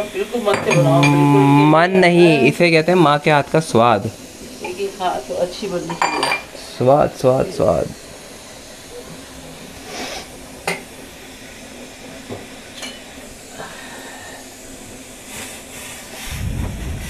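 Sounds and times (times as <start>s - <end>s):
gas burner hissing: 0.0s - 17.0s
low rumble: 16.3s - 17.0s.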